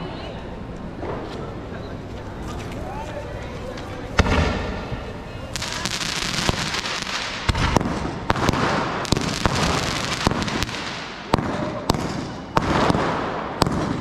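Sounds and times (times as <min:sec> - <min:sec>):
hissing crackle of fireworks: 0:04.2 - 0:14.0
firecracker bangs: 0:05.6 - 0:14.0.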